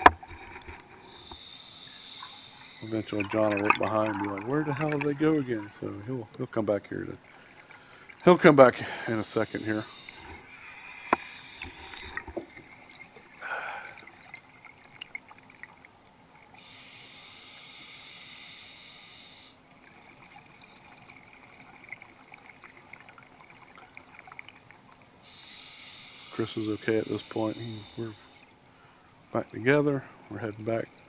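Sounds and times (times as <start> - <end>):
underwater bubbling: 0.0 - 31.0
hiss of air: 1.1 - 3.2, 9.4 - 12.1, 16.6 - 19.6, 25.3 - 28.4.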